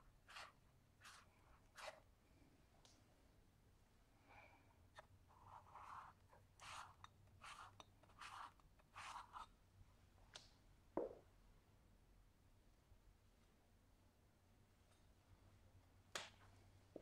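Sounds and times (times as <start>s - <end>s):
palette knife scraping paper: 0.2s - 2.0s, 5.3s - 9.5s.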